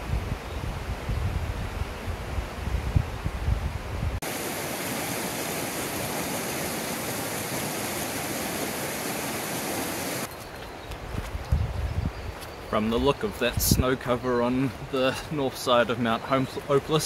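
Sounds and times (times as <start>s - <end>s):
wind rumble on microphone: 0.0s - 4.2s, 10.9s - 13.9s
river rushing over stones: 4.2s - 10.3s.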